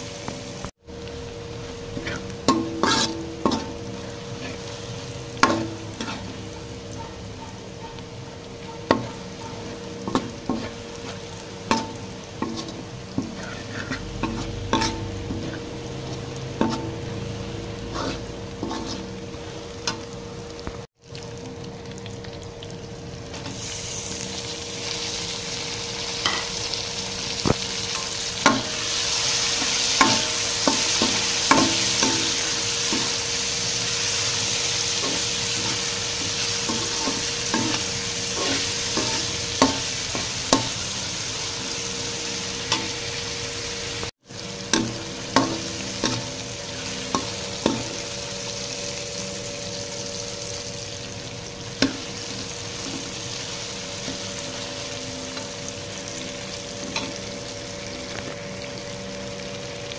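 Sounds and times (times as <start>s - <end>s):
vegetables sizzling in oil: 0.0s - 59.9s
metal spoon scraping wok: 1.9s - 20.0s, 26.2s - 26.7s, 27.4s - 43.2s, 44.5s - 48.9s.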